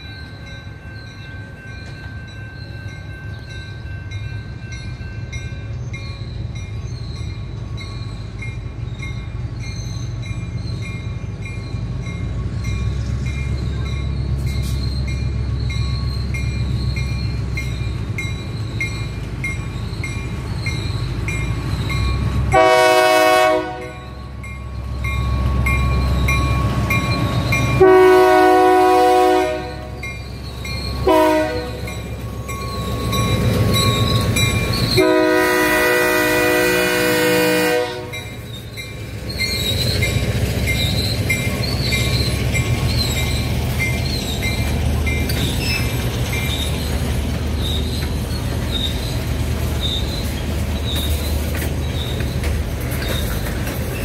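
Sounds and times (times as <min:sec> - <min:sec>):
diesel locomotive engine running: 0:00.0 - 0:54.0
train horn blasts: 0:22.5 - 0:24.2, 0:27.8 - 0:30.1, 0:31.0 - 0:32.0, 0:35.0 - 0:38.3.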